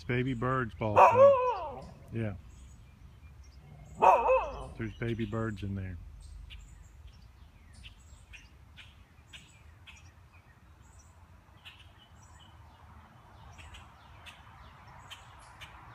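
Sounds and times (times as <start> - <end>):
low outdoor background: 0.0 - 15.9
baby birds chirping: 0.1 - 10.2.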